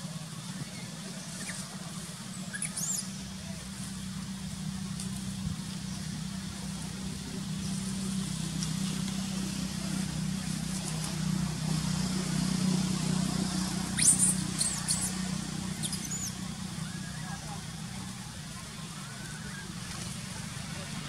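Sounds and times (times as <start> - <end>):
baby monkey squealing: 14.0 - 15.1.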